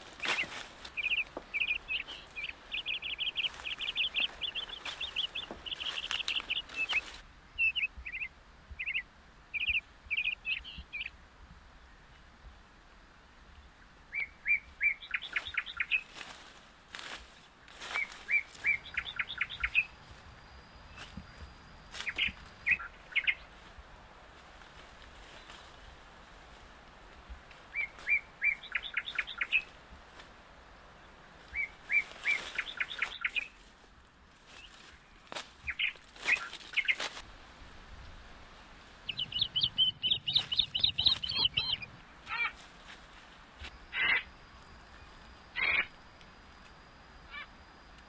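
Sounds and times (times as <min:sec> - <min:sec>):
small birds chirping: 0:00.0 - 0:11.2, 0:14.1 - 0:23.7, 0:27.6 - 0:29.8, 0:31.0 - 0:33.7, 0:34.5 - 0:37.2, 0:39.0 - 0:42.9, 0:43.6 - 0:46.3.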